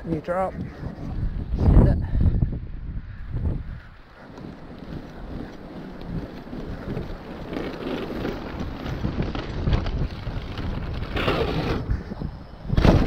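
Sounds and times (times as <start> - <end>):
wind rushing over microphone: 0.0 - 13.0
bike tyres rattling over dirt: 3.6 - 13.0.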